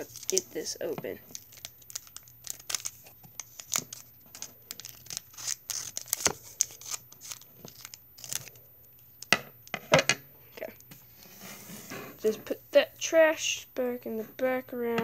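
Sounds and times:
foil wrapper crinkling: 0.0 - 8.6.

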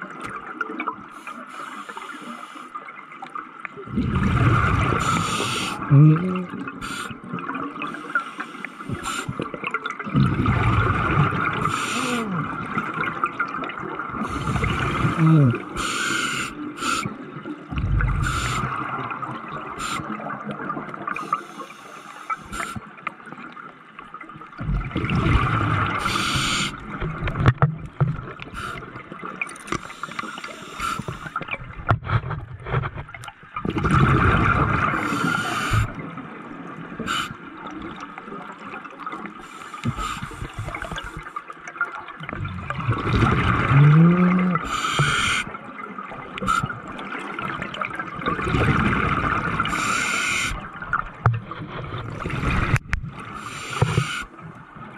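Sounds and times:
bubbling exhaust underwater: 3.8 - 23.5, 24.5 - 41.4, 42.1 - 54.9
regulator hiss: 49.7 - 50.6.

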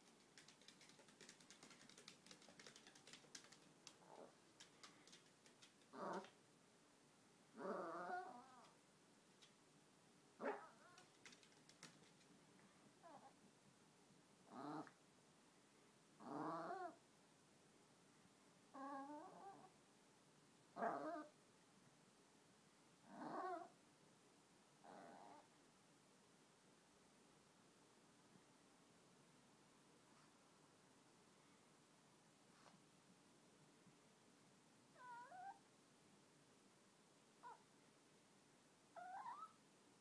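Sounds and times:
dog whiny grumbling: 7.6 - 8.6.

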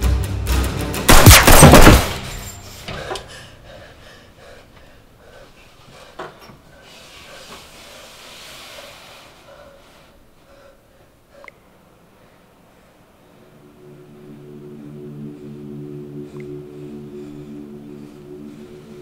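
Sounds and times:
gunshots: 1.1 - 2.4.

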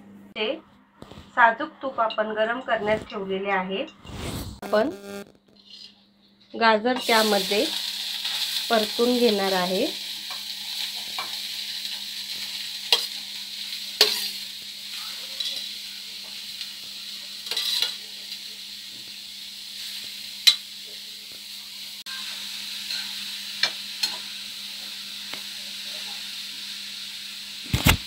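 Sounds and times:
carrots sizzling in hot fat: 7.0 - 28.0
steel spoon scraping and clinking: 14.0 - 14.4, 15.4 - 15.7, 17.4 - 18.0.

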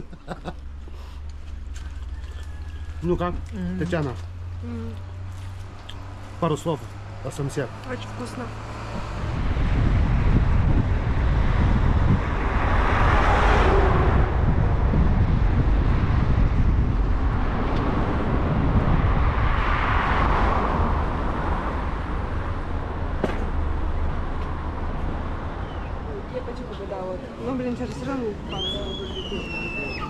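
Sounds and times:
car road and engine rumble: 0.0 - 30.0
passing vehicles hiss: 25.3 - 30.0.

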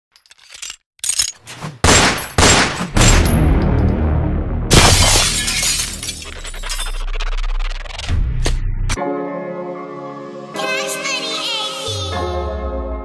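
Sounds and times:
gunshots hitting glass: 1.8 - 3.6, 4.7 - 6.8
glass breaking: 4.7 - 7.1.

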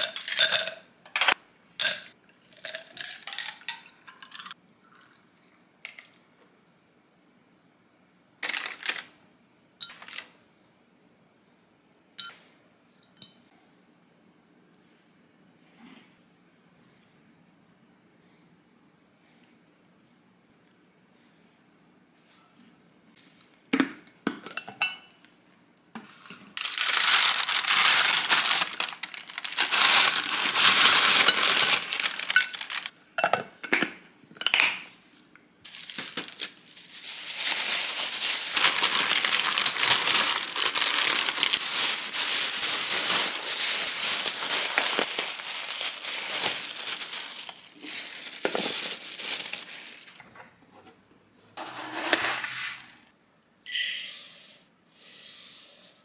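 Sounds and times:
plastic bag and paper crinkling: 8.4 - 9.2, 26.6 - 33.0, 35.6 - 50.4.

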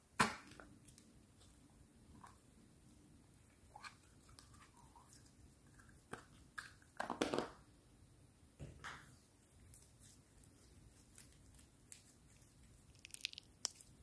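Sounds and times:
slime squelching and crackling: 9.5 - 14.0.

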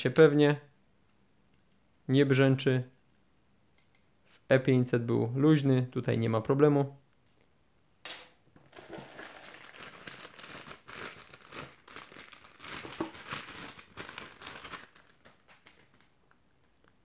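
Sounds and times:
plastic bag crinkling: 8.6 - 16.4.

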